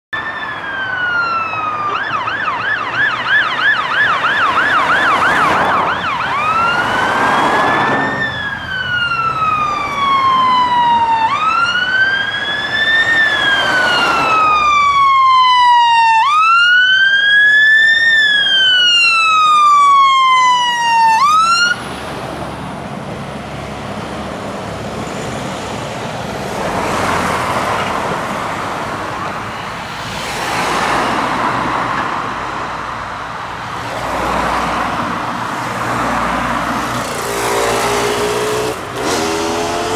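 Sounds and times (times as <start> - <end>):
road traffic: 0.1 - 39.9
electronic siren wailing and yelping: 0.2 - 21.8
engine noise: 0.2 - 39.9.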